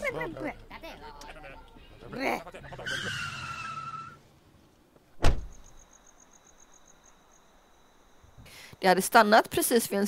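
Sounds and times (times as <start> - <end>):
car brakes squealing: 2.7 - 4.2
car door slamming: 5.2 - 5.6.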